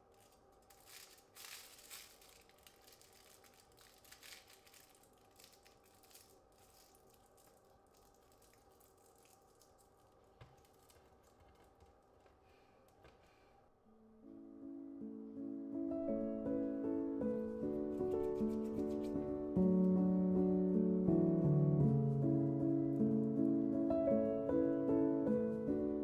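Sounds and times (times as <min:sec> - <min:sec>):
aluminium foil crinkling: 0:00.0 - 0:12.3, 0:17.4 - 0:20.0.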